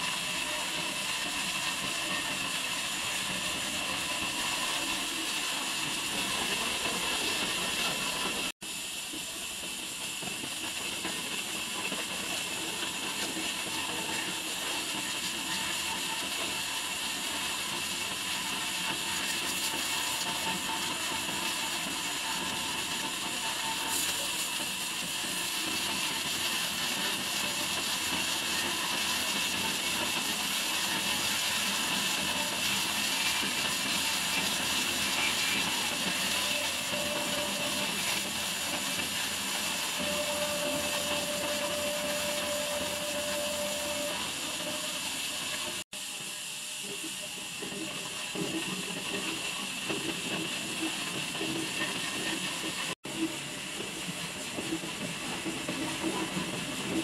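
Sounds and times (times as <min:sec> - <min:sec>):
band saw hissing: 0:12.4 - 0:45.8.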